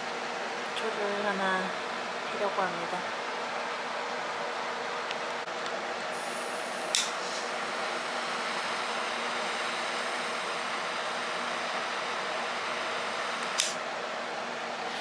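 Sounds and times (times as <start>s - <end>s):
sharp click: 6.9s - 7.2s, 13.4s - 13.8s.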